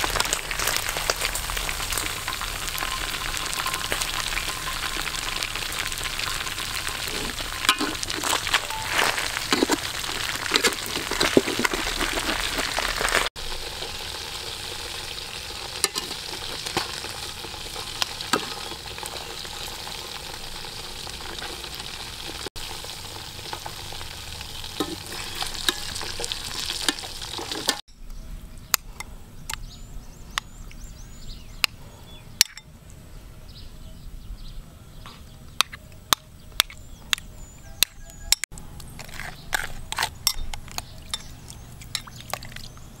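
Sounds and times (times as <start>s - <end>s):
food deep-frying in hot oil: 0.0s - 27.8s.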